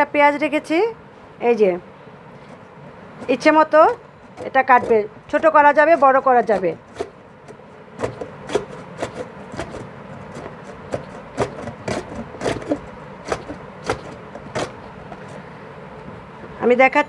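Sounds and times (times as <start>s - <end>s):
onion scraping on slicer blade: 3.2s - 15.4s.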